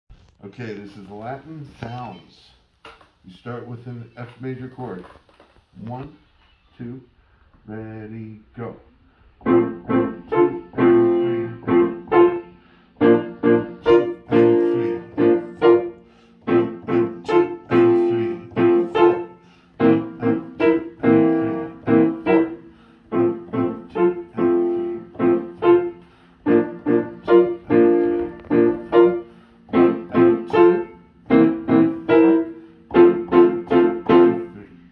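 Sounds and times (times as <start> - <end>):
upright piano chords: 9.4 - 34.9.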